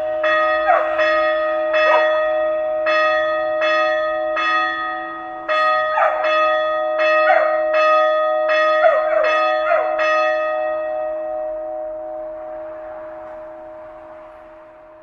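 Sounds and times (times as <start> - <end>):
church bell ringing: 0.0 - 15.0.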